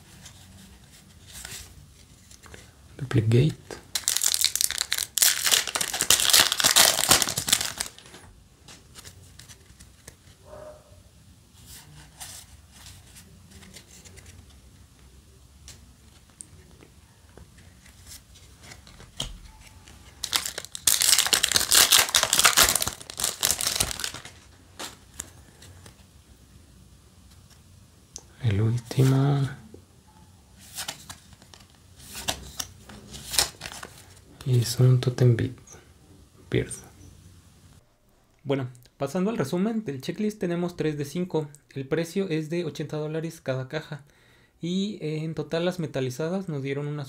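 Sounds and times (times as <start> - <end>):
foil wrapper crinkling: 3.9 - 8.2, 19.8 - 25.9.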